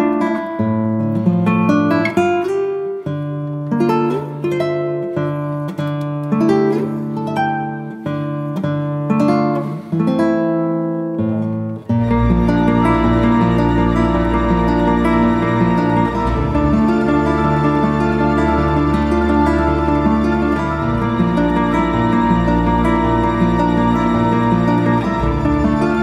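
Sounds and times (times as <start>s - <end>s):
plucked acoustic guitar: 0.0s - 26.0s
low bass line: 12.1s - 26.0s.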